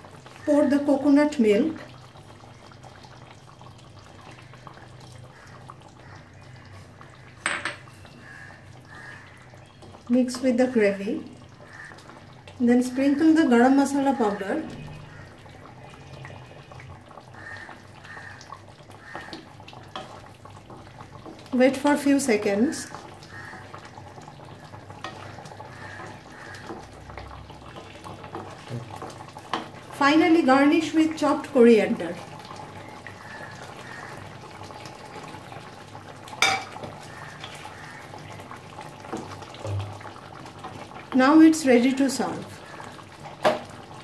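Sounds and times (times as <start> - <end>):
curry bubbling in a wok: 0.0 - 44.0.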